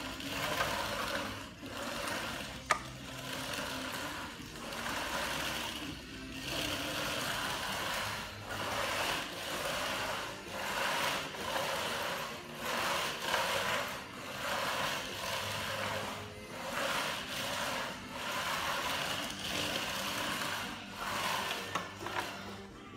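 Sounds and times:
spiked roller through wet compound: 0.0 - 22.9.

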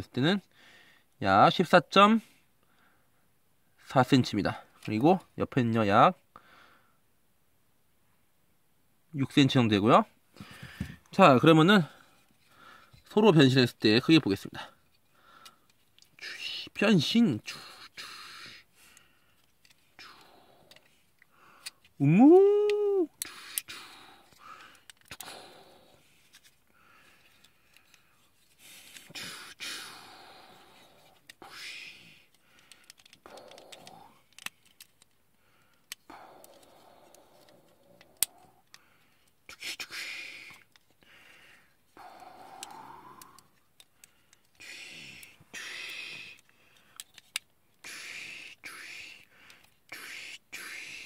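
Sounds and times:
plastic action figure clicking: 19.4 - 20.9, 32.3 - 35.2, 35.8 - 38.8, 42.2 - 44.6, 46.3 - 47.5.

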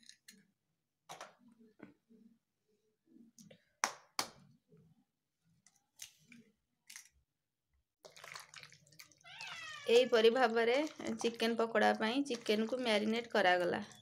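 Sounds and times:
soft wet handling sounds: 5.4 - 7.3, 8.0 - 14.0.

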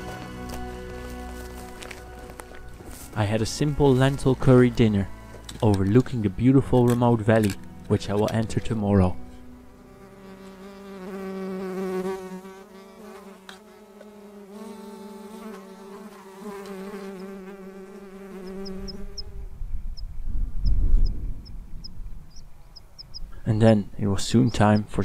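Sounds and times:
fly buzzing: 9.3 - 19.5
small bird chirping: 18.4 - 25.0.

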